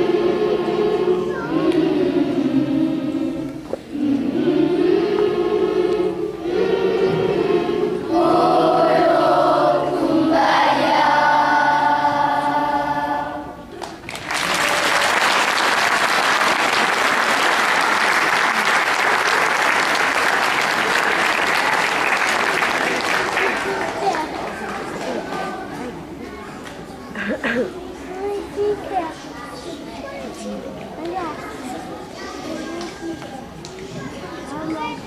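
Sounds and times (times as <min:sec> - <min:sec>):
children's choir singing: 0:00.0 - 0:13.8, 0:14.4 - 0:26.1
audience applause: 0:14.0 - 0:25.0.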